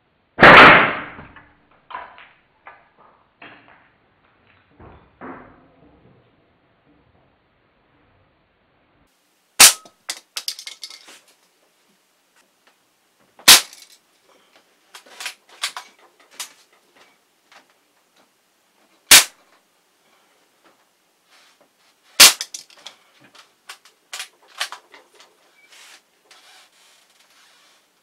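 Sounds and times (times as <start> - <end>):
air rifle shots: 0.4 - 1.2, 9.6 - 11.0, 13.4 - 14.0, 19.1 - 19.4, 22.2 - 22.7
toy cars and debris clattering: 9.6 - 11.3, 13.4 - 17.7, 22.2 - 27.4.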